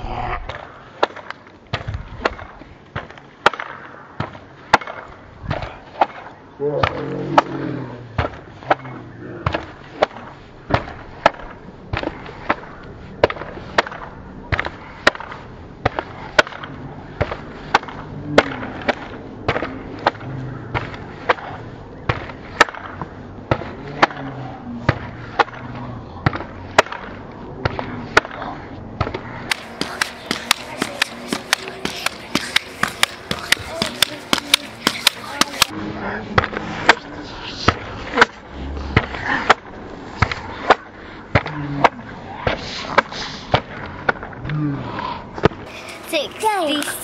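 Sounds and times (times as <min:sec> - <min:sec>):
pogo stick clacking on pavers: 0:29.0 - 0:35.8.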